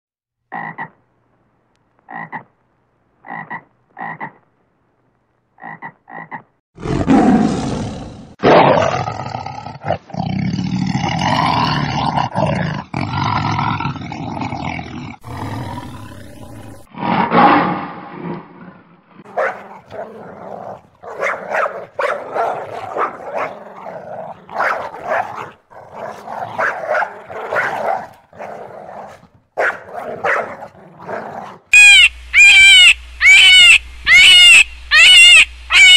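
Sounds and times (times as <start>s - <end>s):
toad croaking: 0.5s - 1.0s, 2.1s - 2.5s, 3.2s - 4.4s, 5.6s - 6.5s, 31.7s - 35.9s
lion roaring and growling: 6.8s - 31.7s
small dog barking: 19.3s - 20.2s, 21.0s - 23.8s, 24.5s - 28.5s, 29.6s - 31.2s.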